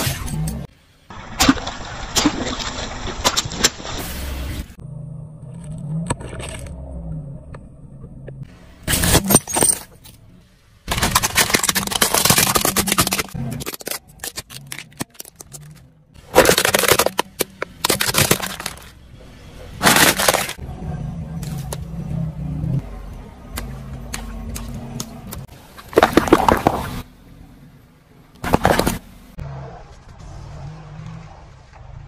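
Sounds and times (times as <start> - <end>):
plastic toy cracking under tyre: 10.9 - 18.9
tyre crunching food: 10.9 - 18.9, 19.8 - 20.6.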